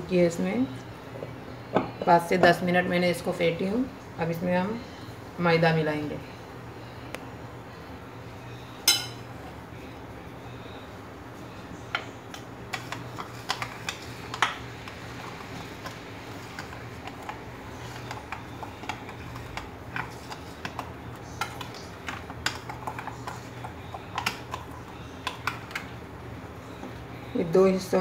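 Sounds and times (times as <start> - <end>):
steady low hum: 0.0 - 28.0
spoon scraping a bowl: 15.2 - 25.9.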